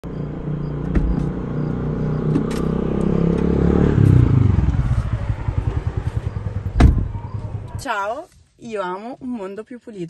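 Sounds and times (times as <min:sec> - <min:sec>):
vehicle engine throbbing: 0:00.0 - 0:07.8.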